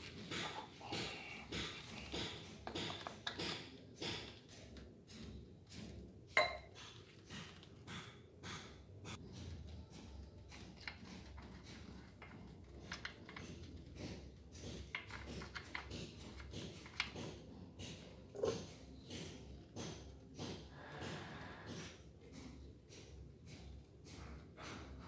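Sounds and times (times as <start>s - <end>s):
glass clink: 6.4s - 6.7s.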